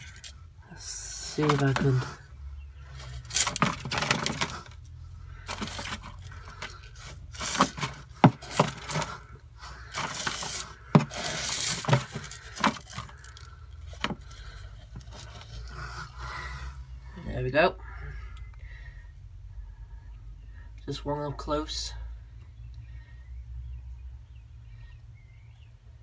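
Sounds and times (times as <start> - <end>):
rustling and scraping in a bin: 1.2 - 16.2
sharp knocks on bin sides: 7.4 - 9.2, 10.0 - 13.1.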